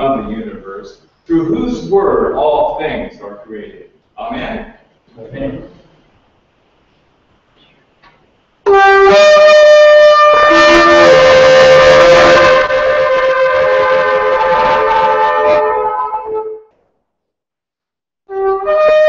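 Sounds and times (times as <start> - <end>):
shofars blowing: 8.7 - 16.8, 18.3 - 19.0.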